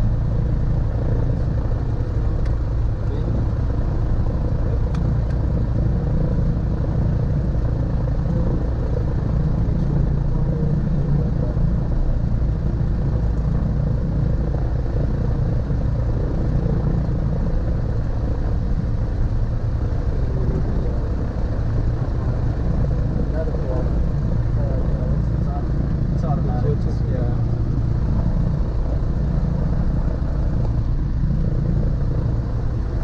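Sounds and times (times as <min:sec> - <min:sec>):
airplane engines and propellers running: 0:00.0 - 0:33.0.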